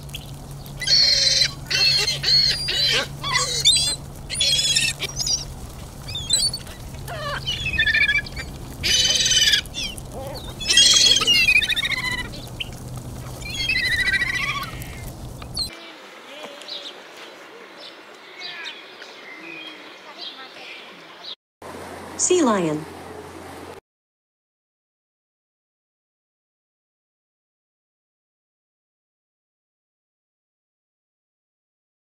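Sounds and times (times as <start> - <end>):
gulls squawking: 0.1 - 21.4.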